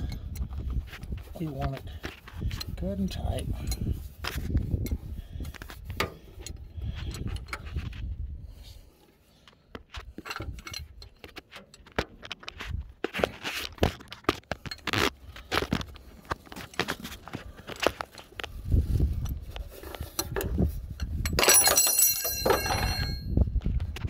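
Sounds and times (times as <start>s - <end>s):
wrench clinking on bolt: 10.1s - 12.2s, 20.0s - 23.3s.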